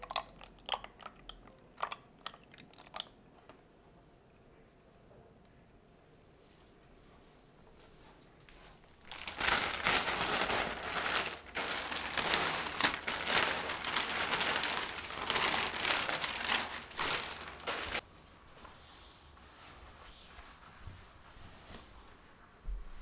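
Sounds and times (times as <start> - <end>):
plastic wrapping crinkling: 8.8 - 18.0.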